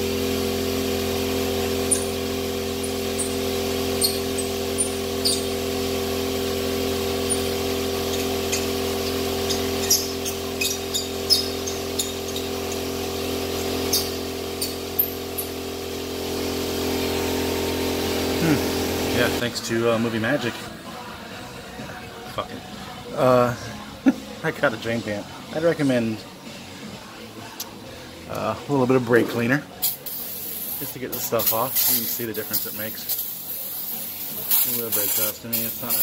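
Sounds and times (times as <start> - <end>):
air compressor humming: 0.0 - 36.0.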